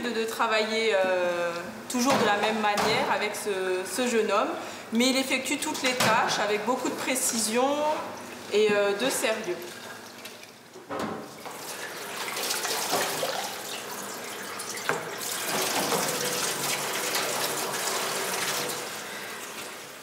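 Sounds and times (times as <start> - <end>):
tap water running into sink: 7.3 - 19.8.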